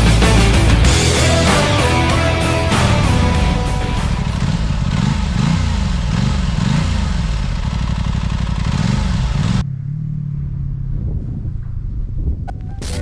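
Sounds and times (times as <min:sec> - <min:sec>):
motorcycle engine running: 0:00.0 - 0:13.0
wind noise: 0:10.4 - 0:13.0.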